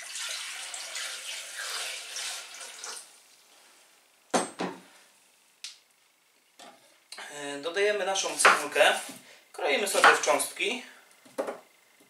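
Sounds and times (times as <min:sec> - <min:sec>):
water pouring into steel bowl: 0:00.0 - 0:03.1.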